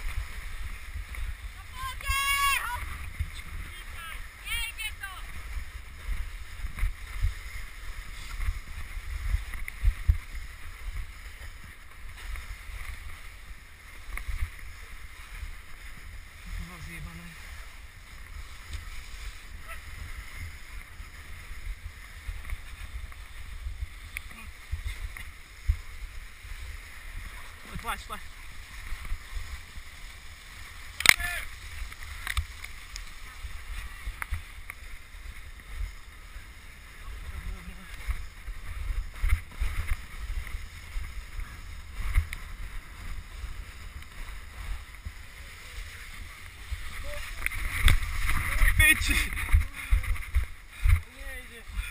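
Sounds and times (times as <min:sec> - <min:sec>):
sledge runners hissing on snow: 0:00.0 - 0:01.6, 0:05.2 - 0:30.9, 0:31.5 - 0:51.9
wind on microphone: 0:00.0 - 0:51.9.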